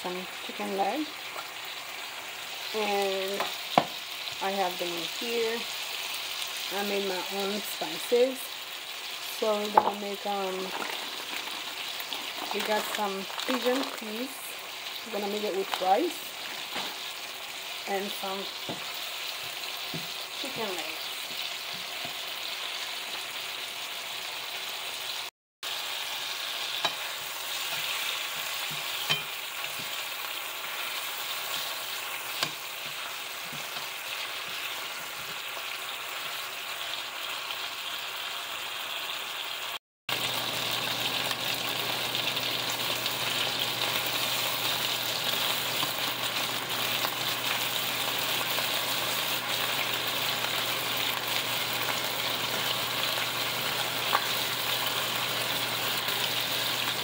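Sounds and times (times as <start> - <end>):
chicken sizzling in oil: 0.0 - 57.0.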